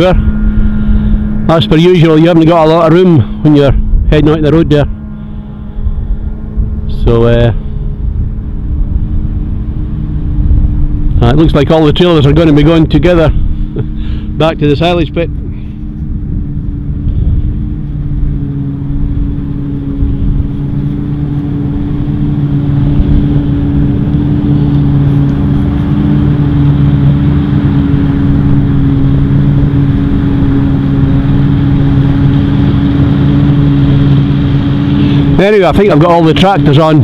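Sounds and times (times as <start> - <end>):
forage harvester engine drone: 0.0 - 37.0.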